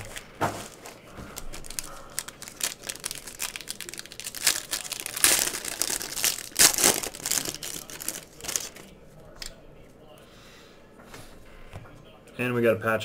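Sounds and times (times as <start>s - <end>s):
foil wrapper crinkling: 0.0s - 9.5s.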